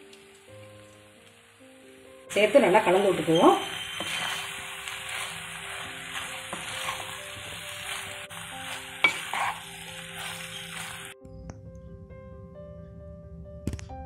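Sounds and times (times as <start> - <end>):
pasta sizzling in pan: 0.0 - 11.2
wooden spatula stirring: 3.0 - 11.2.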